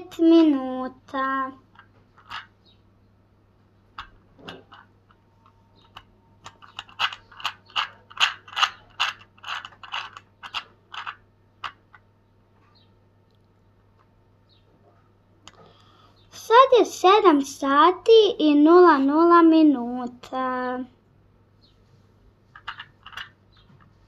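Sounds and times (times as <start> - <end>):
toy clock gears clicking: 4.0 - 11.8.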